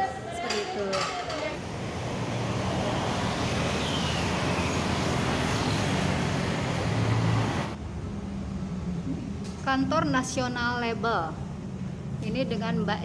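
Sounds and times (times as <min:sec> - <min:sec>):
passing road vehicles: 0:00.0 - 0:09.6.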